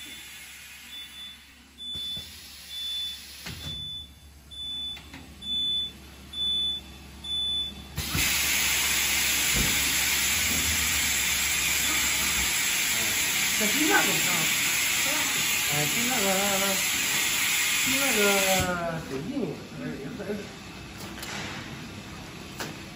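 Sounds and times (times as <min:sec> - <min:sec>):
loud hiss of air: 0:00.0 - 0:01.1, 0:08.0 - 0:18.8
low machine hum: 0:00.0 - 0:17.4.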